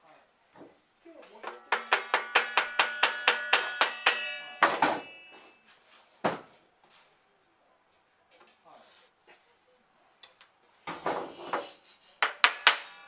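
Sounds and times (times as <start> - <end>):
heavy metal knock: 1.4 - 5.2
metal tapping with ring: 1.4 - 5.3, 12.2 - 13.0
sharp knock: 1.5 - 5.2.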